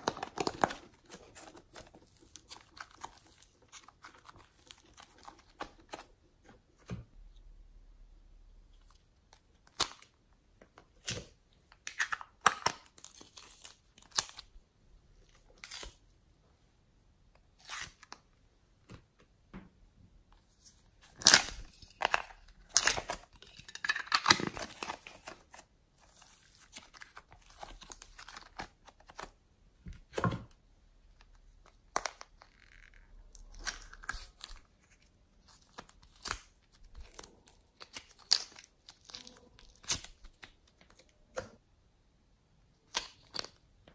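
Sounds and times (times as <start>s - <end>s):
slime crackling and tearing: 21.0s - 29.3s, 31.6s - 40.8s.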